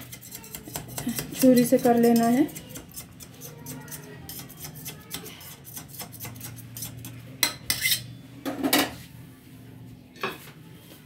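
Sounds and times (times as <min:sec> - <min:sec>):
knife scraping metal bowl: 0:00.0 - 0:08.2.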